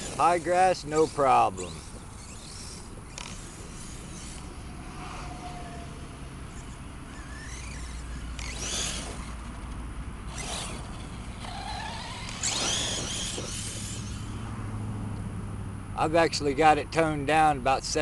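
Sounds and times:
tyres tearing through grass: 0:00.0 - 0:05.3, 0:06.5 - 0:14.4
electric motor whining: 0:00.0 - 0:14.5.

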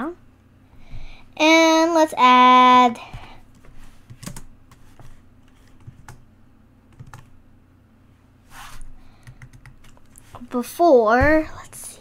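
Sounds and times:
computer keyboard keystrokes: 0:03.6 - 0:06.2, 0:06.9 - 0:07.3, 0:09.2 - 0:10.2.

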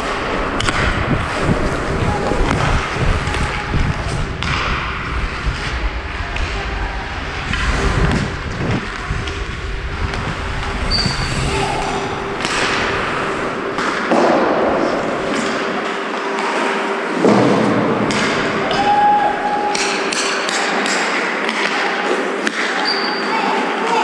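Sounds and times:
camera movement rumble: 0:00.4 - 0:15.7
skates scraping on ice: 0:07.3 - 0:16.0
stick and puck thuds: 0:12.4 - 0:18.8.

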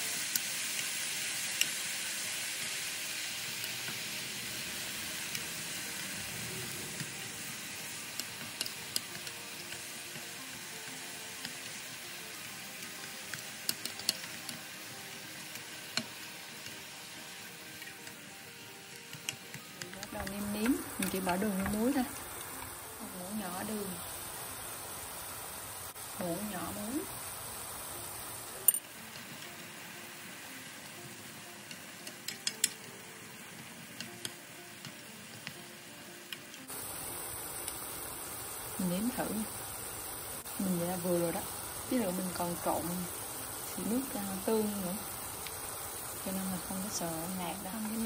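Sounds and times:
mushrooms sizzling in a pan: 0:00.0 - 0:48.0
utensil clicking against pan: 0:08.1 - 0:10.4, 0:12.8 - 0:14.7, 0:15.4 - 0:16.8, 0:19.0 - 0:22.7, 0:31.6 - 0:32.9, 0:34.0 - 0:35.6.

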